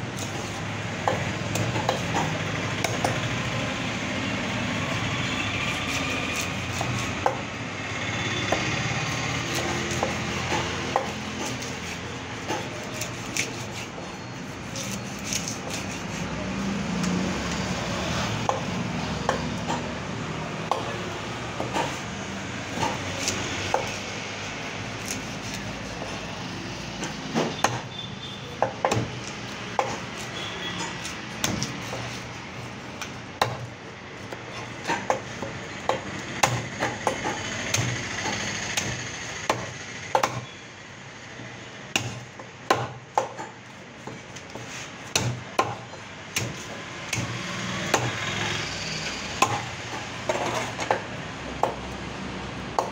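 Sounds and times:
steady background noise: 0.0 - 52.9
knife chopping on wooden block: 0.2 - 3.2, 6.3 - 7.4, 9.4 - 14.0, 14.7 - 16.2, 18.4 - 19.9, 20.7 - 21.0, 22.7 - 24.0, 27.0 - 27.9, 28.6 - 32.2, 33.4 - 33.7, 34.3 - 40.5, 41.9 - 48.2, 49.4 - 51.0, 51.6 - 51.9.

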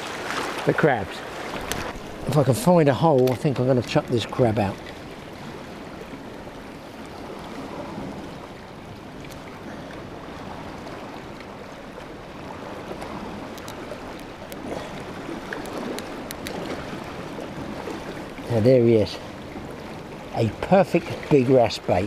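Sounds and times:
surf splashing against rocks: 0.0 - 22.0
faint clicks: 13.5 - 14.6, 15.5 - 16.6.

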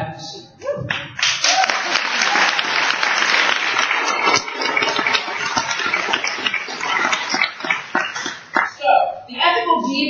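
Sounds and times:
audience applauding: 1.2 - 8.8.

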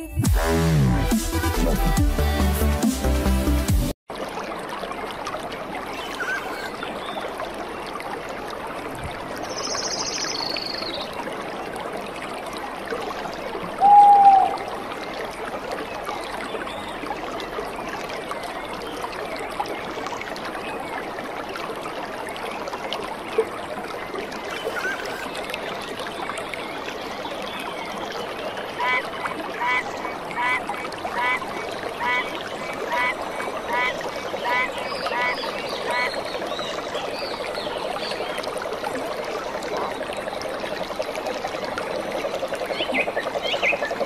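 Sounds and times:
water rushing from waterfall: 11.1 - 44.0
loud clear whistle-like call: 13.8 - 14.6.

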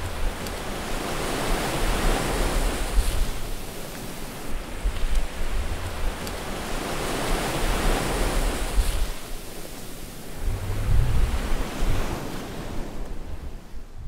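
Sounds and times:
low rumble: 10.3 - 12.1
rushing noise: 10.3 - 12.2.

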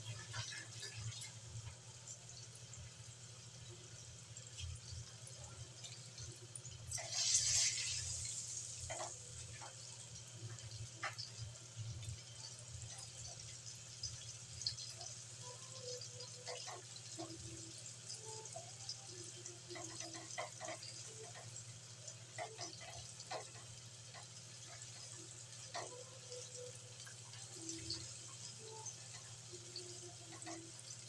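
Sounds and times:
oil sizzling with pops: 0.0 - 31.0
spatula scraping a wok: 6.9 - 8.4.

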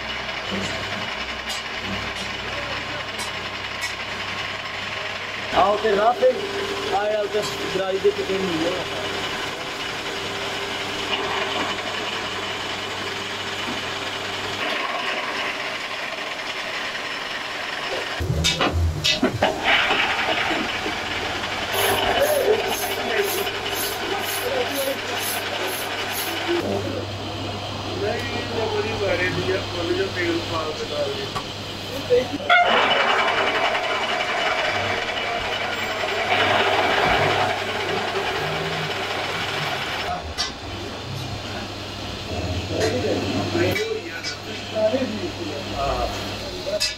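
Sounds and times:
motor hum: 3.7 - 32.2
metal lathe cutting metal: 19.1 - 26.7, 32.4 - 40.1.

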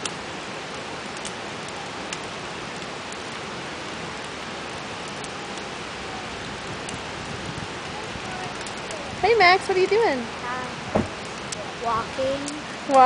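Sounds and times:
campfire crackling: 0.0 - 13.0
rushing outdoor noise: 0.0 - 13.0.

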